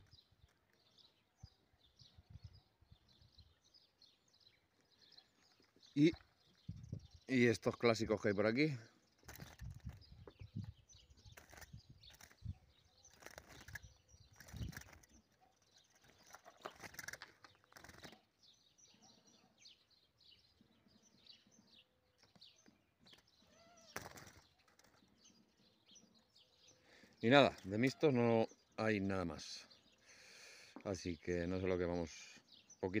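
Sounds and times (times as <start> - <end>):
finches chirping: 0.0 - 28.0
wings fluttering in cage: 9.2 - 10.2, 11.2 - 18.3, 23.0 - 25.1.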